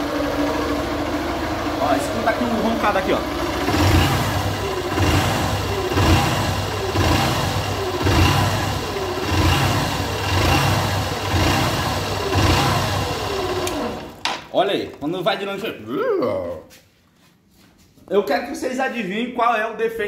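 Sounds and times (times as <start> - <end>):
motorcycle engine growling: 0.0 - 14.5.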